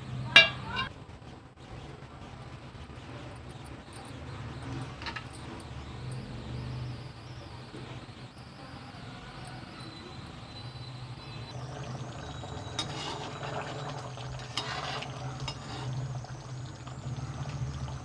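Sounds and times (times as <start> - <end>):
low steady hum: 0.0 - 7.5
spoon stirring thick gravy: 12.3 - 16.3.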